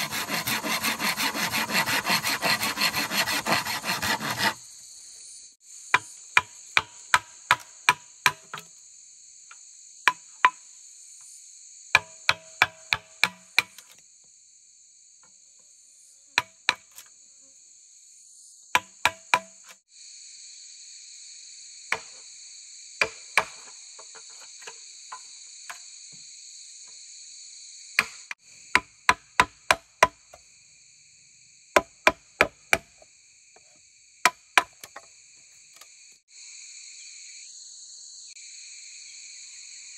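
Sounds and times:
blade chopping bamboo: 0:00.0 - 0:04.6, 0:06.0 - 0:08.7, 0:12.0 - 0:13.8, 0:18.8 - 0:19.6, 0:31.8 - 0:32.9, 0:34.3 - 0:35.1
high insect drone: 0:00.0 - 0:39.9.

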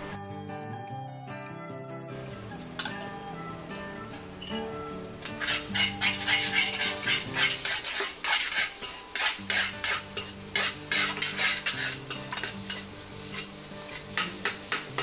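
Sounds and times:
metal spoon scraping a pan: 0:02.2 - 0:03.3, 0:04.2 - 0:15.0.

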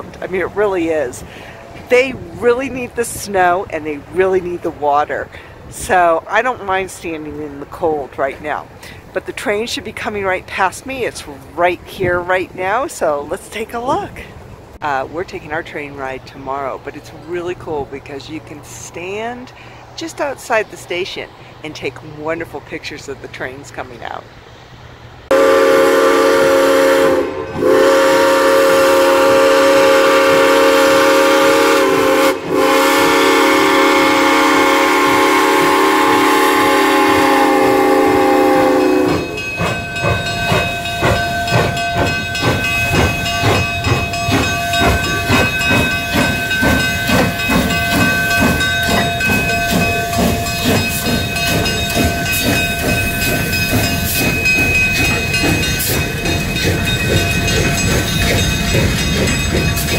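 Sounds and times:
steam whistle: 0:25.3 - 0:39.5
steam locomotive working beat: 0:25.3 - 0:59.9
train wheels clattering on rails: 0:32.6 - 0:59.9.

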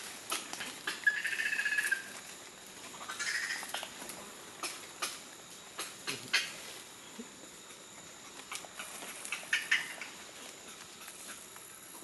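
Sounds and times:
footsteps crunching dry leaves: 0:00.0 - 0:03.8.

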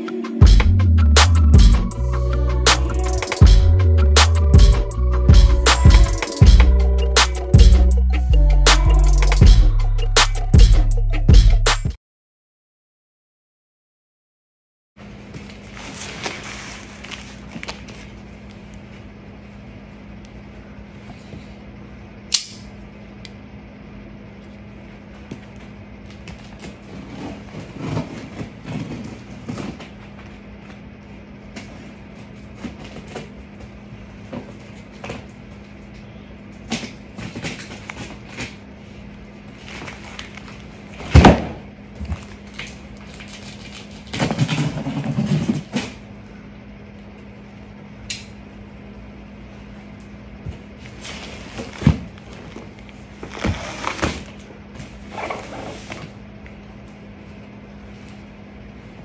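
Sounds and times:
steady low hum: 0:00.0 - 0:11.6, 0:15.0 - 0:59.0
box thumping on floor: 0:41.0 - 0:41.6.

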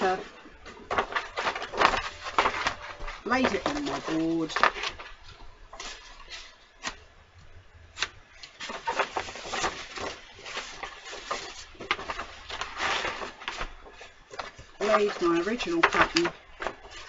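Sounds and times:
paper rustling and crackling: 0:00.0 - 0:17.0.

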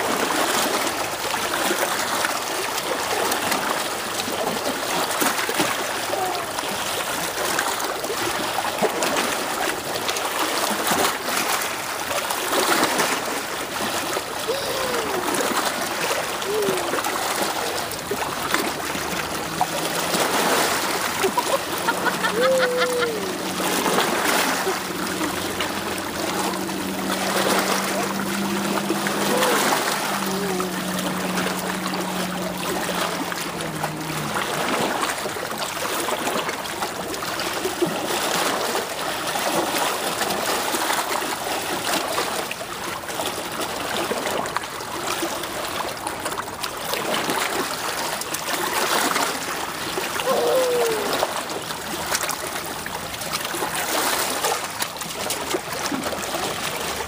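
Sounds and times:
toddler splashing water: 0:00.0 - 0:57.0
water trickling over rocks: 0:00.0 - 0:57.0
steady low hum: 0:14.9 - 0:35.4.

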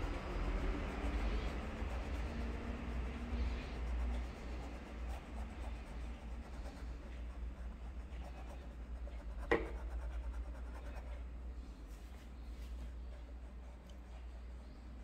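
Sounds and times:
paintbrush rubbing on canvas: 0:00.0 - 0:11.2.

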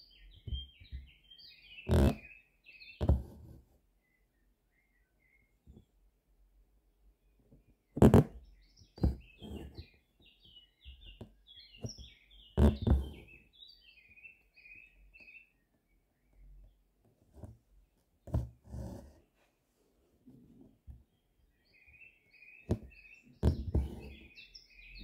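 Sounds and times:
small birds chirping: 0:00.0 - 0:03.4, 0:04.0 - 0:05.9, 0:07.2 - 0:16.9, 0:21.0 - 0:25.0
needle and thread through fabric: 0:01.9 - 0:02.3, 0:03.0 - 0:03.8, 0:08.0 - 0:08.4, 0:09.0 - 0:10.0, 0:12.6 - 0:13.4, 0:17.1 - 0:19.5, 0:22.7 - 0:24.4.

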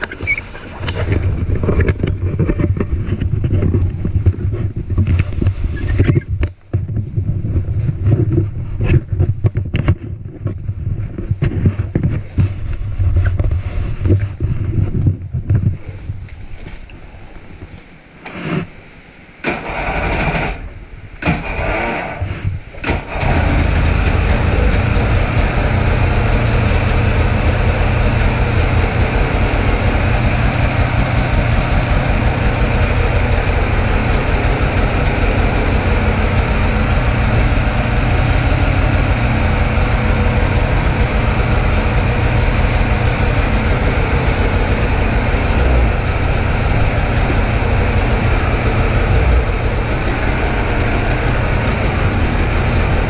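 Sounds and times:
snowmobile engine starting and idling: 0:19.4 - 0:53.0.

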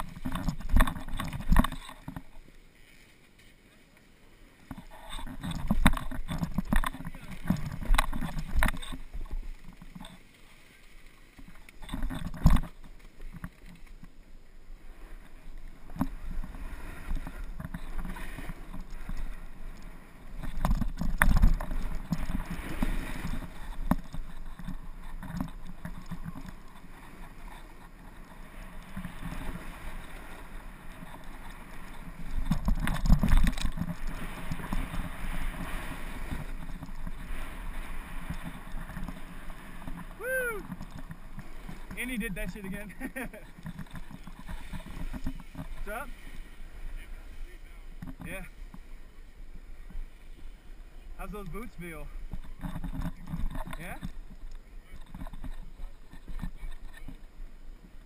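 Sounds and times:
snowboard scraping on snow: 0:14.7 - 0:53.2
wind noise on microphone: 0:14.8 - 0:48.7.

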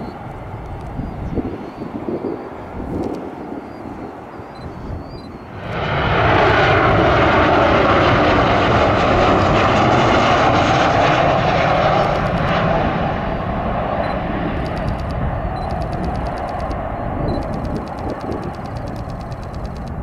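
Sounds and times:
jet engine roar with whine: 0:00.0 - 0:20.0.

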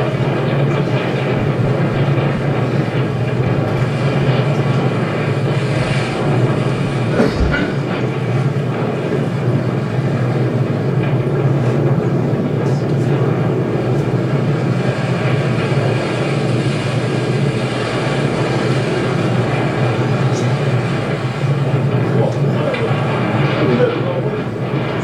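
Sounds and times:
wind rushing: 0:00.0 - 0:10.2
low rumble: 0:00.0 - 0:25.0
sea rushing: 0:00.0 - 0:25.0.

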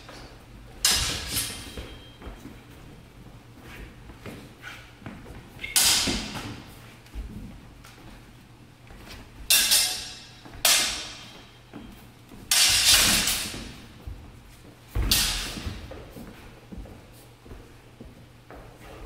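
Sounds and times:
steel swords clashing: 0:00.8 - 0:02.1, 0:05.6 - 0:06.4, 0:09.5 - 0:11.4, 0:12.5 - 0:13.7, 0:15.1 - 0:15.6.

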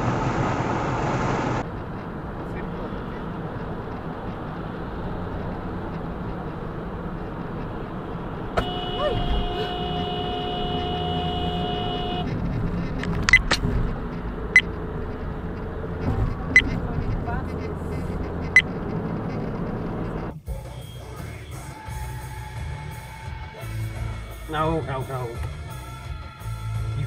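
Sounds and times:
car road and engine rumble: 0:00.0 - 0:27.0
two-tone car horn blast: 0:08.6 - 0:12.4.

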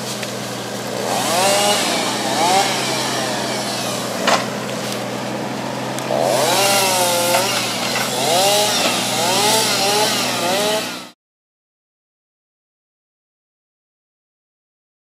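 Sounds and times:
forestry machine engine whining: 0:00.0 - 0:11.2.

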